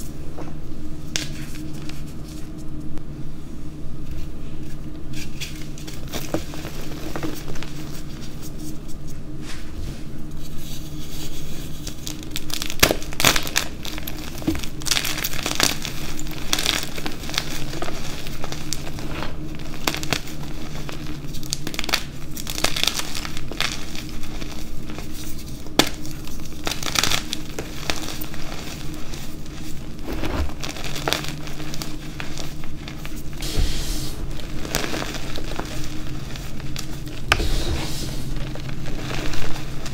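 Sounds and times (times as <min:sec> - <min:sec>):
powdery rustling: 0:13.4 - 0:39.9.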